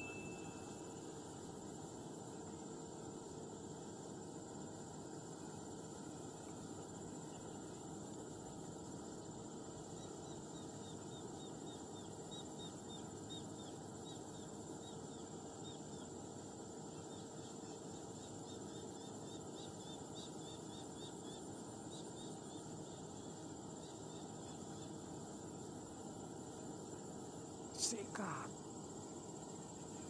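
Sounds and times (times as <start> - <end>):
low hiss: 0.0 - 11.0
faint high hum: 0.0 - 30.0.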